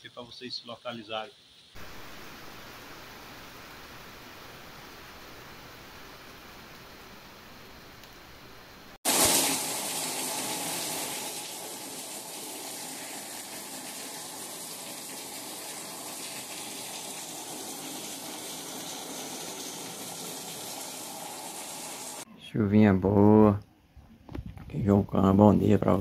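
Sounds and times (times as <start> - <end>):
water streaming off roof: 0.0 - 7.6, 9.0 - 22.3
heavy rain pouring: 1.8 - 7.6.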